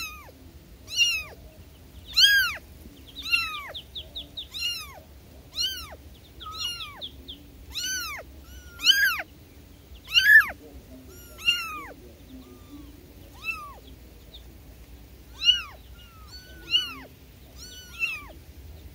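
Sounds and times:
kitten meowing: 0.0 - 0.3, 0.9 - 1.4, 2.1 - 2.6, 3.2 - 3.8, 4.5 - 7.0, 7.7 - 9.3, 10.1 - 13.8, 15.3 - 18.4.

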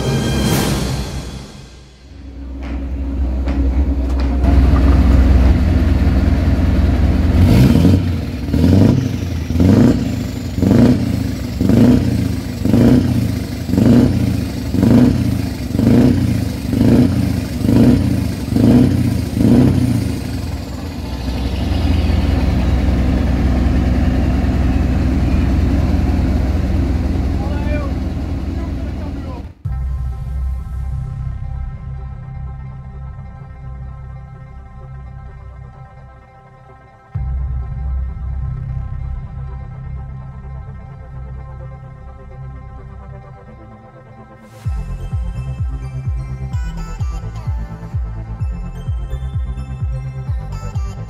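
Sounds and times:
diesel truck engine revving: 2.1 - 29.6.

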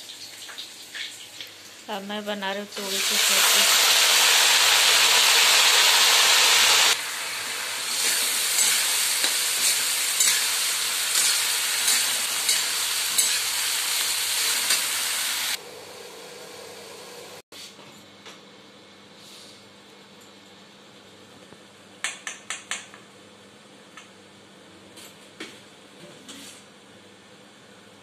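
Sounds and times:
vegetables sizzling in a wok: 0.0 - 17.4
spatula scraping a pan: 8.0 - 13.5.

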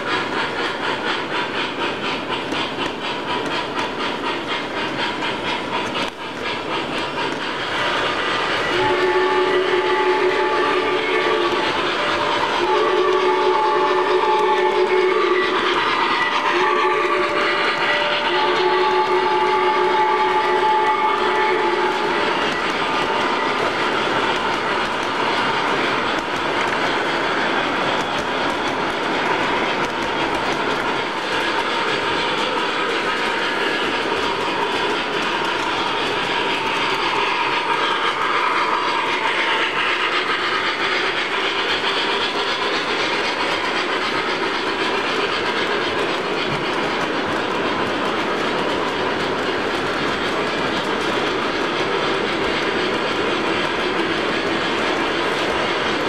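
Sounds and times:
model train wheels clattering on rails: 0.0 - 56.0.

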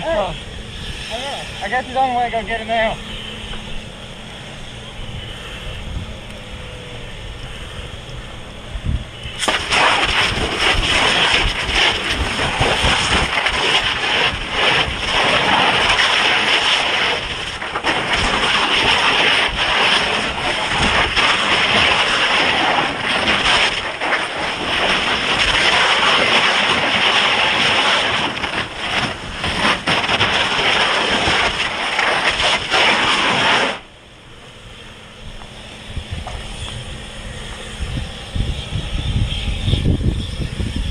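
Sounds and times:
fire hose spraying water: 9.3 - 33.9.

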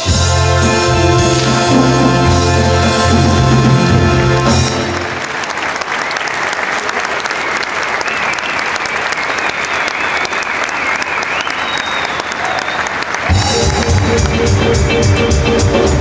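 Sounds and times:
loud music: 0.0 - 5.3, 13.3 - 16.0
audience applause: 1.3 - 15.0.

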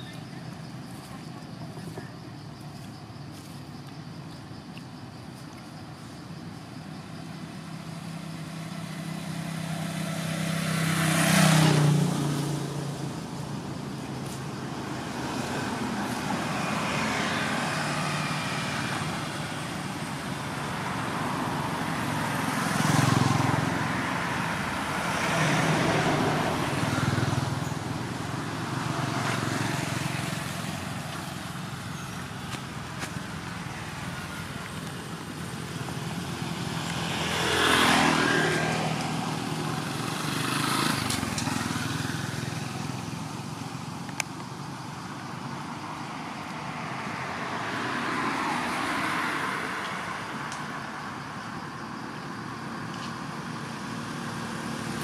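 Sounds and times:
vehicles passing on road: 0.0 - 55.0.

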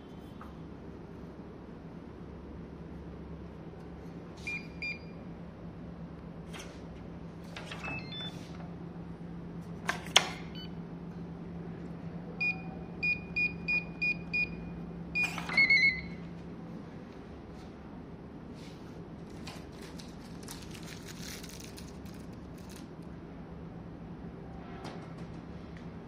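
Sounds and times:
keypad beeps: 4.5 - 5.1, 7.8 - 8.4, 10.5 - 10.8, 12.4 - 16.2.

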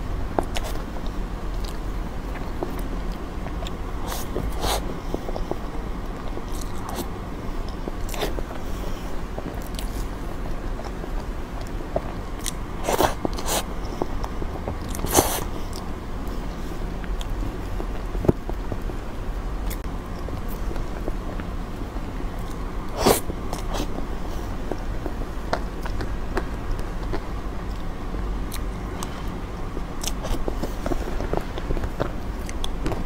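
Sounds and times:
steady low hum: 0.0 - 33.0
lip smacks and chewing: 9.4 - 10.1, 10.7 - 15.9, 30.0 - 33.0.

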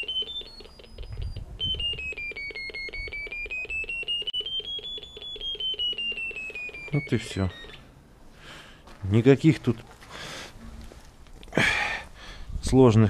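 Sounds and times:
receiver rapid beeps: 0.0 - 7.9.

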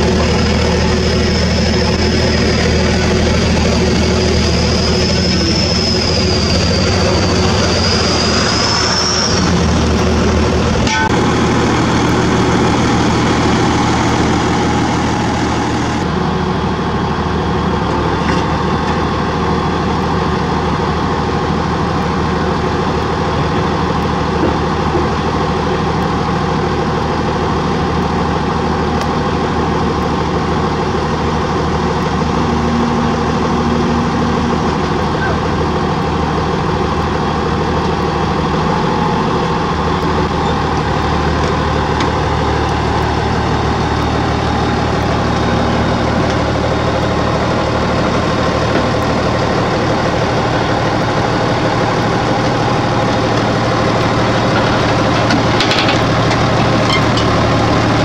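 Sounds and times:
thin high whine: 0.0 - 16.1
diesel engine running: 0.0 - 58.0.

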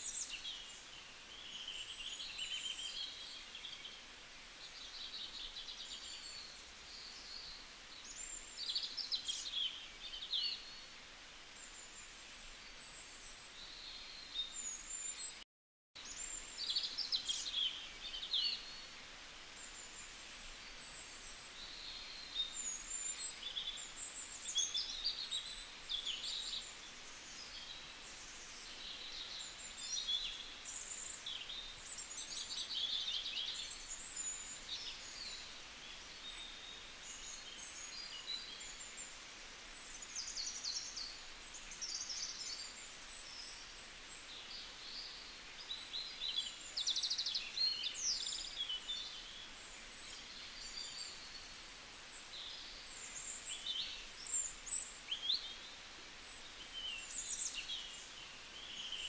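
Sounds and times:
faint outdoor hiss: 0.0 - 15.4, 16.0 - 59.0
small birds chirping: 16.0 - 59.0.

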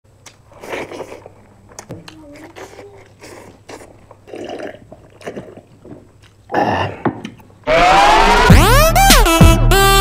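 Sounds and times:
chewing and mouth smacks: 0.2 - 6.4.

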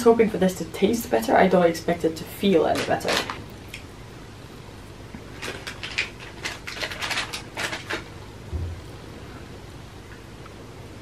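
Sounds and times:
plastic packet crackling: 2.6 - 3.8, 5.3 - 8.1
low thump: 8.5 - 9.0.

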